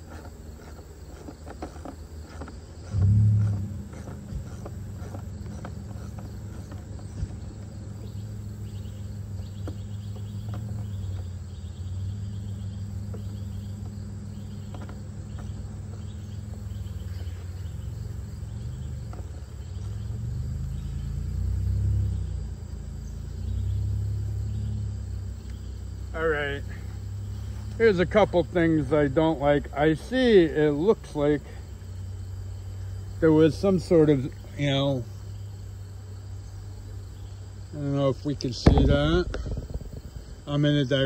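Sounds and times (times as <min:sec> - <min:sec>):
insects chirping: 0:00.0 - 0:41.0
steady low rumble: 0:38.3 - 0:41.0
thump: 0:38.6 - 0:40.3.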